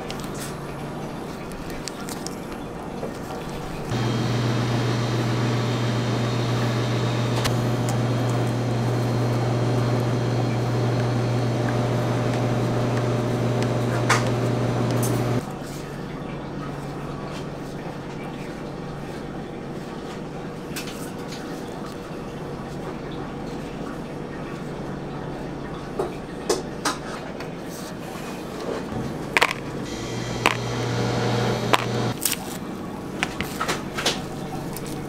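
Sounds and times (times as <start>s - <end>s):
low machine hum: 3.9s - 15.4s, 28.9s - 32.2s.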